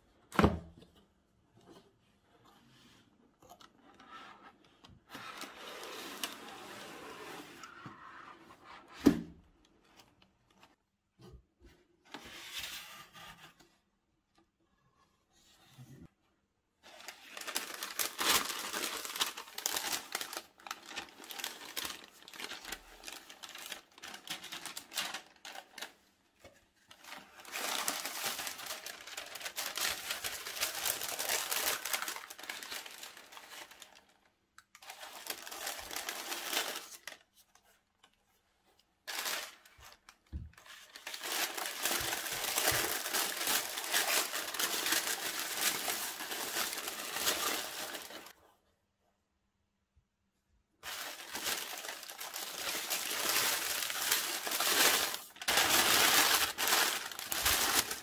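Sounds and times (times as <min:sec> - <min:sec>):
tissue paper crinkling: 0:05.2 - 0:07.3, 0:16.8 - 0:37.8, 0:39.0 - 0:48.4, 0:50.8 - 0:58.0.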